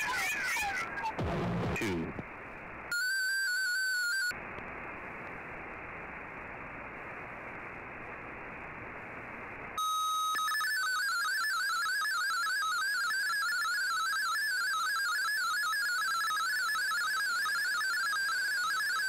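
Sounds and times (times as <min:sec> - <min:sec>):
shortwave static hiss: 0:00.0 - 0:03.4, 0:04.0 - 0:19.0
rapidly hopping data signal: 0:09.8 - 0:19.0.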